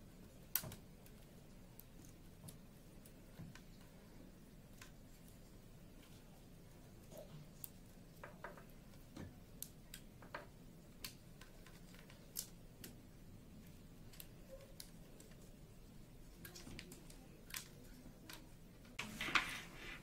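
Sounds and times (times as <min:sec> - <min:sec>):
rustle of handling: 0:13.6 - 0:20.0.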